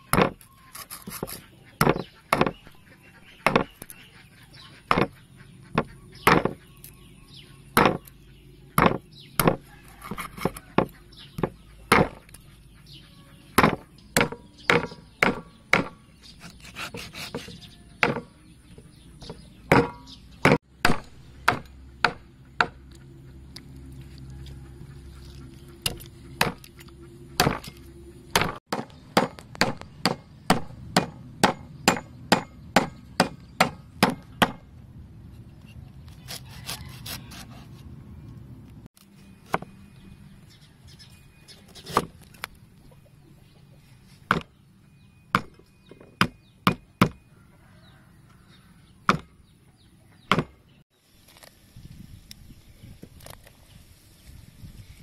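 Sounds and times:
cleaver chopping on wooden block: 0:00.1 - 0:02.6, 0:03.4 - 0:03.7, 0:04.9 - 0:05.2, 0:05.8 - 0:06.6, 0:07.7 - 0:08.1, 0:08.8 - 0:12.2, 0:13.6 - 0:16.0, 0:16.6 - 0:18.3, 0:19.2 - 0:22.8, 0:25.9 - 0:26.7, 0:27.4 - 0:27.8, 0:28.4 - 0:34.6, 0:44.3 - 0:44.5, 0:46.2 - 0:47.2, 0:49.1 - 0:49.3, 0:50.3 - 0:50.6.

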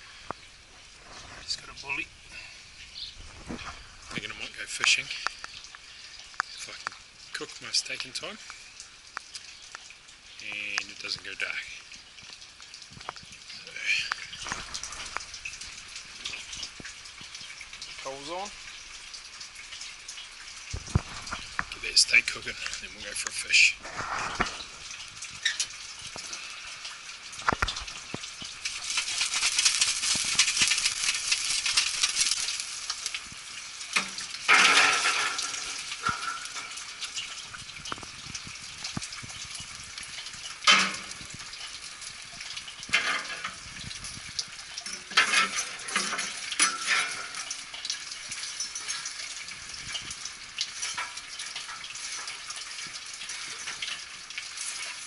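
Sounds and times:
charcoal crackling and hissing: 0:00.0 - 0:55.0
coals clattering on metal: 0:12.3 - 0:55.0.

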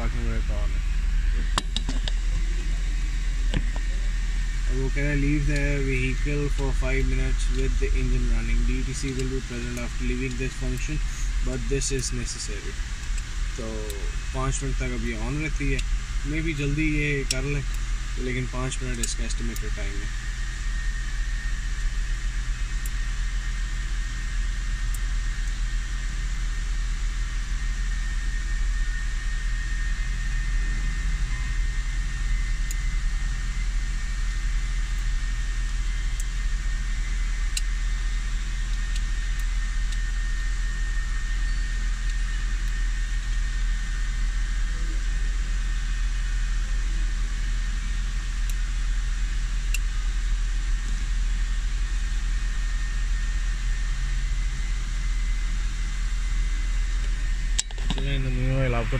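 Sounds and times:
car engine idling: 0:00.0 - 0:25.6
faint high whine: 0:00.0 - 0:58.9.

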